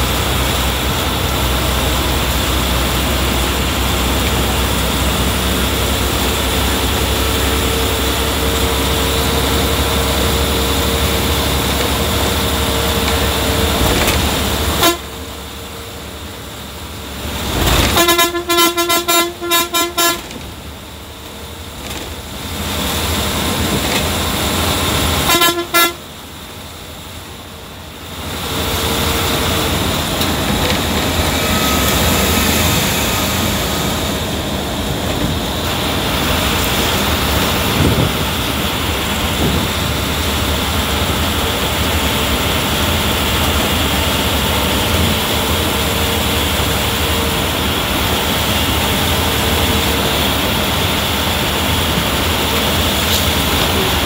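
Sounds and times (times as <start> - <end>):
bus engine and road noise: 0.0 - 54.0
bus horn honking: 3.2 - 15.5, 17.4 - 20.6, 24.8 - 26.2, 28.7 - 38.2.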